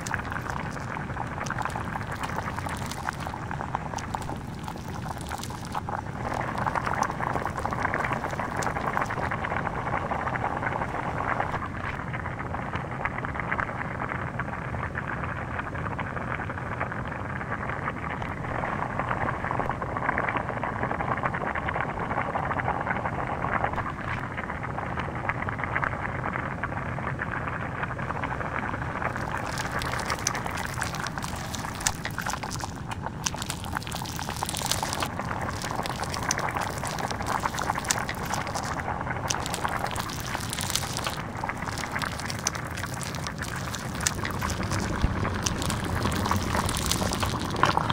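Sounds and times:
burning plastic sizzling and crackling: 0:00.0 - 0:11.8, 0:28.4 - 0:47.9.

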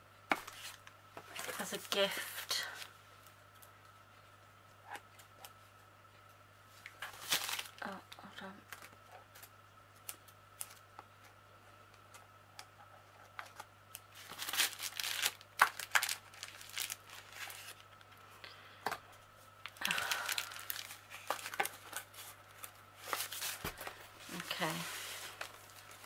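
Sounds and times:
packaging crinkling and rustling: 0:00.3 - 0:02.9, 0:06.8 - 0:08.1, 0:13.2 - 0:18.2, 0:19.6 - 0:26.0
packaging tearing: 0:07.1 - 0:07.8, 0:14.1 - 0:17.8, 0:19.8 - 0:22.3.

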